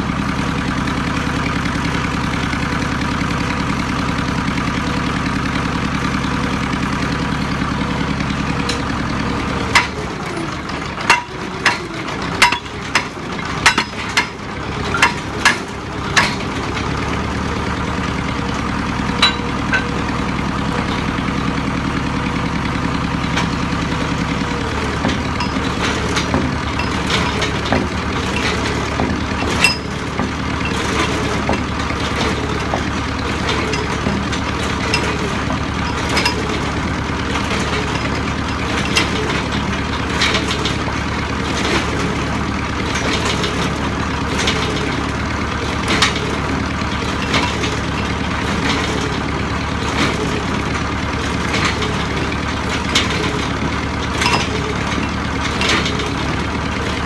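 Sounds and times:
drilling rig engine running: 0:00.0 - 0:57.0
sharp metal clanks: 0:09.7 - 0:16.5, 0:19.2 - 0:20.2, 0:24.9 - 0:36.8, 0:54.2 - 0:56.0.

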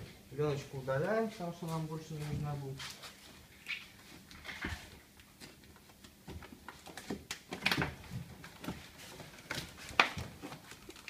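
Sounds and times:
plastic film peeling and crinkling: 0:06.6 - 0:11.0.

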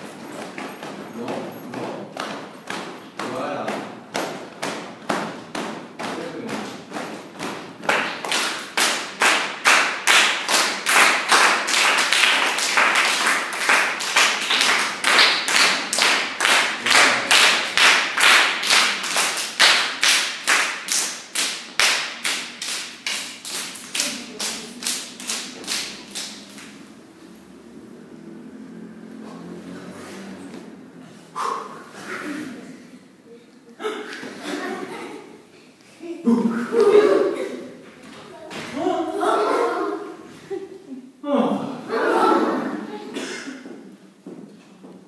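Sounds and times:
people clapping in time: 0:06.0 - 0:26.8.

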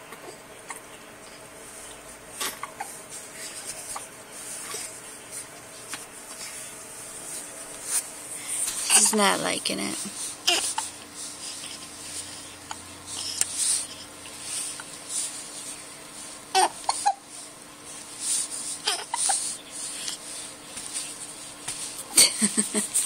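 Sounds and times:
baby whimpering: 0:10.4 - 0:11.8, 0:16.5 - 0:17.3, 0:18.7 - 0:20.2.

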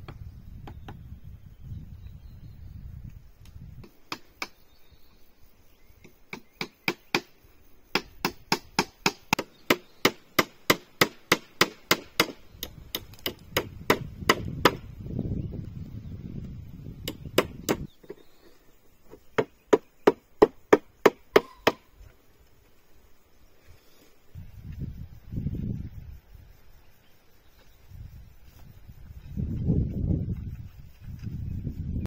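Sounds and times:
hand tool striking wood: 0:07.9 - 0:14.8, 0:17.1 - 0:18.2, 0:19.4 - 0:21.9.

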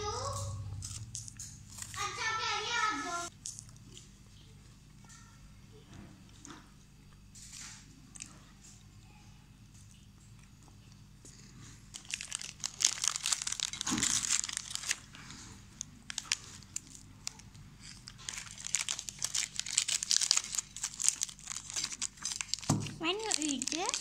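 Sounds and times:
foil wrapper crinkling: 0:11.9 - 0:24.0.

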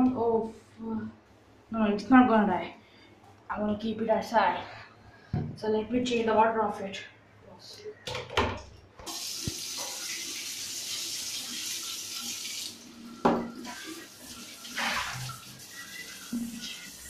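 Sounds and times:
water running from a tap: 0:09.1 - 0:17.0.

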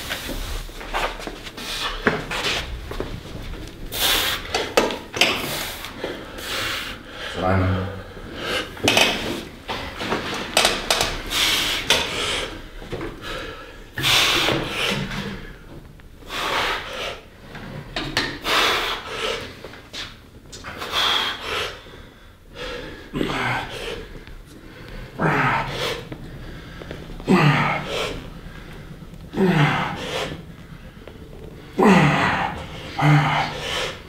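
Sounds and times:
person grunting: 0:25.2 - 0:26.0, 0:27.2 - 0:28.2, 0:29.3 - 0:30.3, 0:31.7 - 0:34.0.

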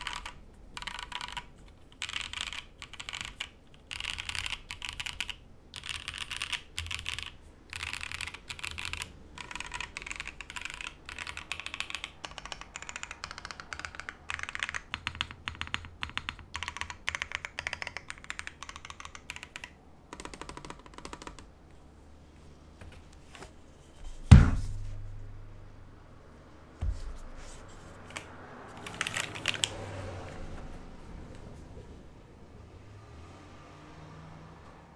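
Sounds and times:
mechanical keyboard typing: 0:00.0 - 0:21.5, 0:28.0 - 0:29.8
loud thump: 0:24.2 - 0:25.2
keyboard handling noise: 0:26.7 - 0:31.9.

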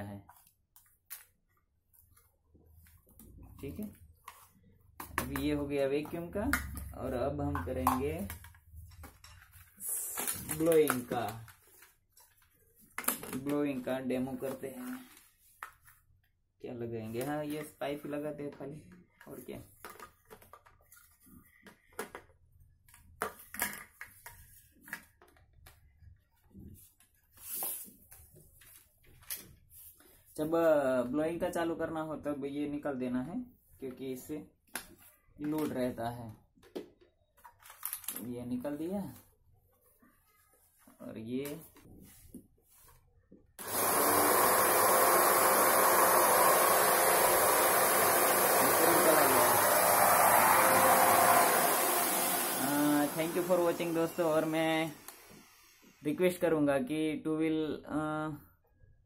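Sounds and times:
vacuum cleaner blowing air: 0:43.6 - 0:56.1.

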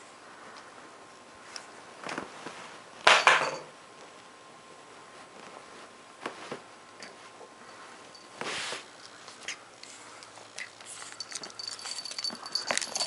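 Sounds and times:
puppy scuffling on a towel: 0:07.2 - 0:08.9.

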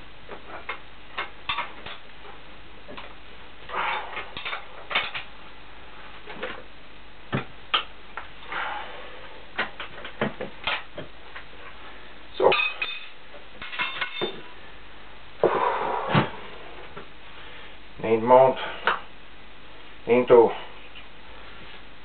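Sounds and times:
steel parts and tools clinking: 0:12.5 - 0:14.4.

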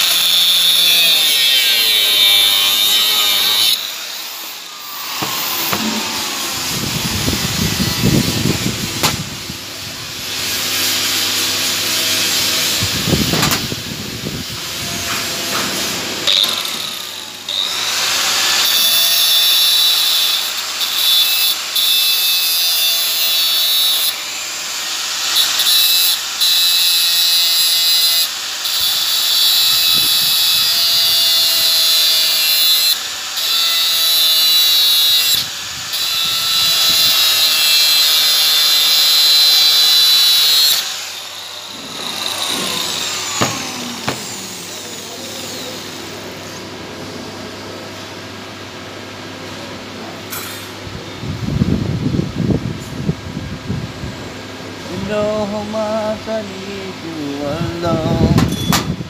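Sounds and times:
power tool hissing on metal: 0:00.0 - 0:46.2.

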